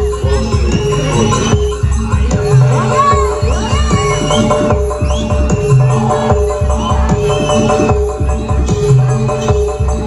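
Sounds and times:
loud drum beat: 0:00.0 - 0:09.9.

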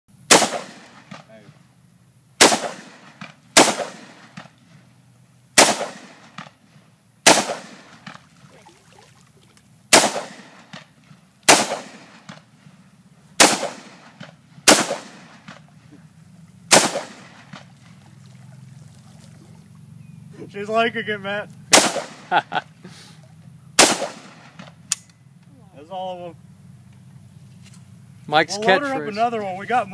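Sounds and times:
rifle shots with echo: 0:00.3 - 0:01.4, 0:02.4 - 0:04.5, 0:05.6 - 0:06.6, 0:07.2 - 0:08.2, 0:09.9 - 0:10.9, 0:11.5 - 0:12.5, 0:13.4 - 0:15.7, 0:16.7 - 0:17.7, 0:21.7 - 0:22.4, 0:23.8 - 0:24.8.

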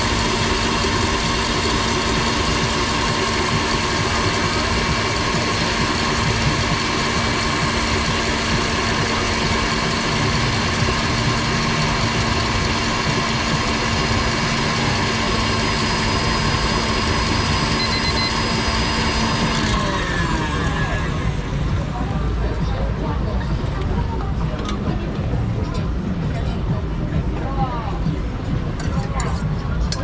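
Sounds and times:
whisk whirring: 0:00.0 - 0:21.9
stand mixer motor whine: 0:00.0 - 0:22.0.

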